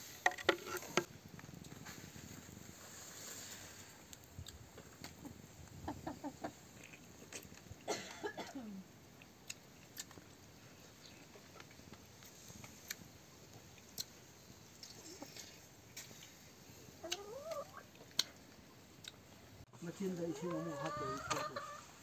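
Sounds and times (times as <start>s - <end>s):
hen clucking: 5.1s - 6.9s, 16.9s - 18.0s, 19.8s - 22.0s.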